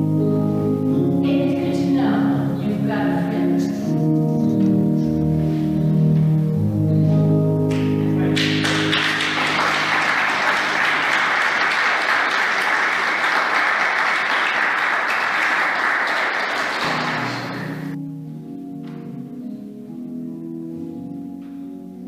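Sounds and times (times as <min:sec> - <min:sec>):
keyboard chords: 0:00.0 - 0:22.0
audience applause: 0:08.2 - 0:18.0.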